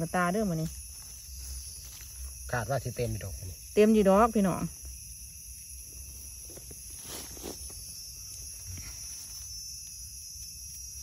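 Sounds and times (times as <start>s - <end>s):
forest insects droning: 0.0s - 11.0s
rustles in dry leaf litter: 6.4s - 9.9s.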